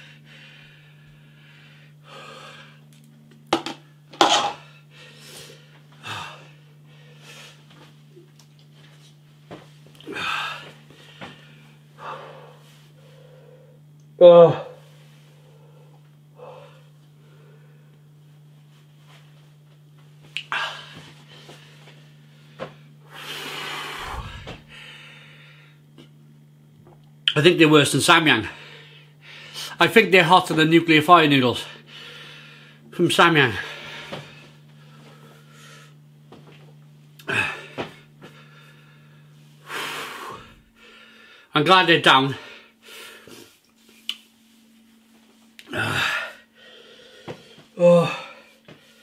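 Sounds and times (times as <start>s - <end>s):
man breathing sharply: 0.0s - 2.9s, 4.7s - 7.7s, 10.1s - 13.8s, 20.5s - 25.8s, 28.5s - 29.8s, 31.7s - 32.8s, 33.6s - 36.0s, 37.3s - 41.5s, 42.4s - 43.6s, 45.8s - 49.0s.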